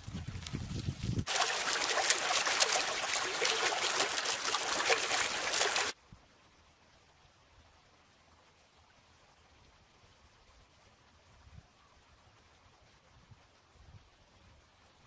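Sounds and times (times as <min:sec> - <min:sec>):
stream splashing over stones: 0:01.2 - 0:06.0.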